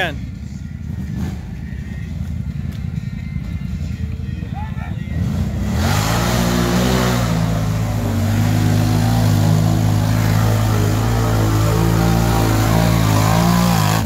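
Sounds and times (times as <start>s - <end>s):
atv engine revving: 0.9s - 1.6s, 4.6s - 14.0s.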